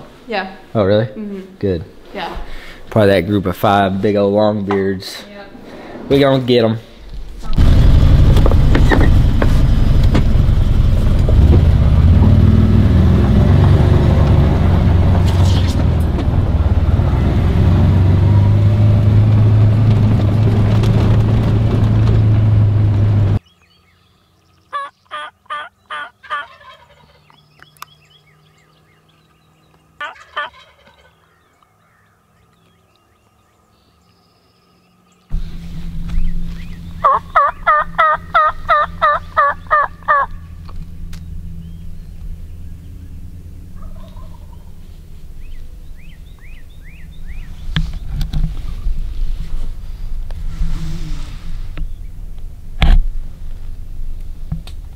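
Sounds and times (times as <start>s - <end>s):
wind rumble: 5.5s - 23.4s, 35.3s - 54.9s
wild turkey calling: 23.4s - 48.1s
turkey gobbling: 24.7s - 27.4s, 30.0s - 31.3s, 36.6s - 40.6s, 43.7s - 47.6s.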